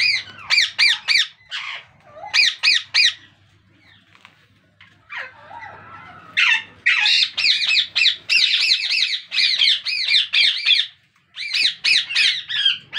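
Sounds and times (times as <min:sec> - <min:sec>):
parakeet squawking: 0:00.0 - 0:03.3, 0:06.4 - 0:12.9.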